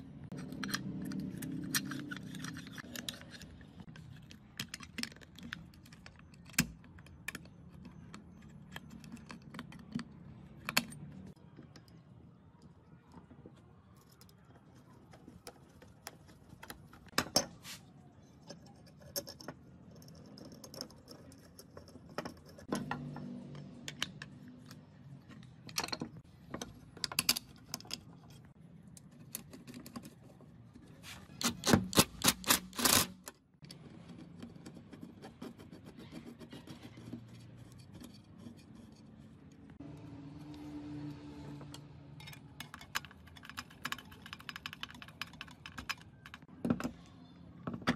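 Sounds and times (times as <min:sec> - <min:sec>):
metal parts clicking and clinking: 0:00.3 - 0:12.0, 0:41.7 - 0:47.0.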